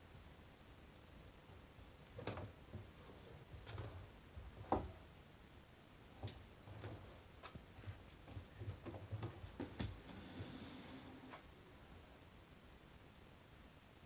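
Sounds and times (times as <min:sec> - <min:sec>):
cat paws knocking and tapping: 0:06.2 - 0:10.2.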